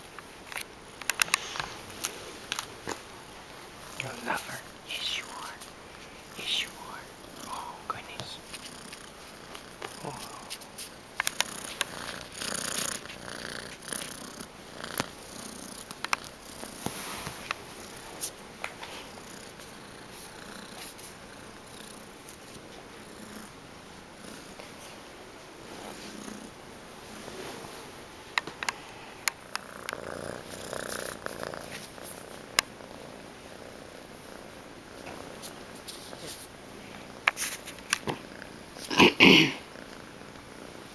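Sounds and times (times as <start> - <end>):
sharp clicks: 1.0 - 1.4, 11.2 - 12.0
cat purring: 1.1 - 25.0, 25.6 - 40.9
hand rubbing fur near microphone: 35.1 - 36.5.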